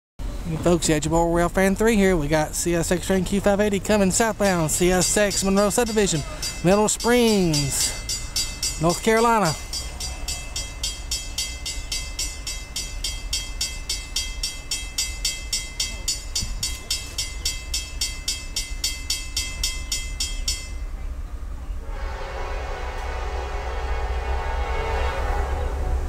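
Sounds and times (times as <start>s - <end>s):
rapid high-pitched pulsing: 3.5s - 20.6s.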